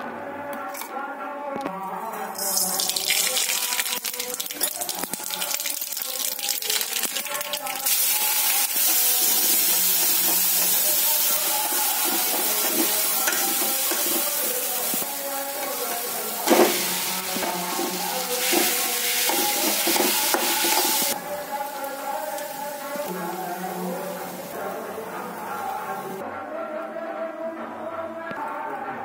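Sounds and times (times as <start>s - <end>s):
chillies sizzling in hot oil: 2.4s - 26.2s
metal spoon stirring: 8.8s - 21.2s.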